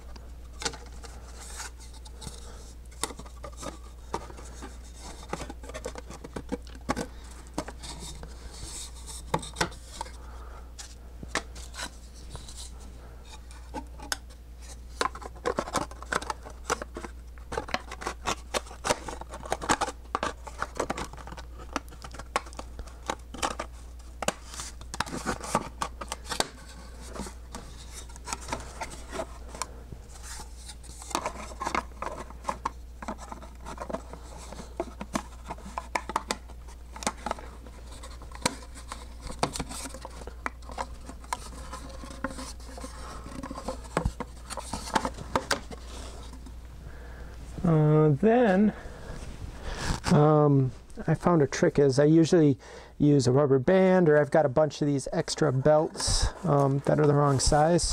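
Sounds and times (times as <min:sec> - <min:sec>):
steady low hum: 0:00.0 - 0:53.6.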